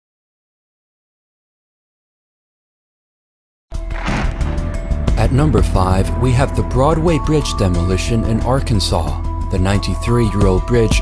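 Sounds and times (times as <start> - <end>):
loud abrupt sound: 3.8 - 5.2.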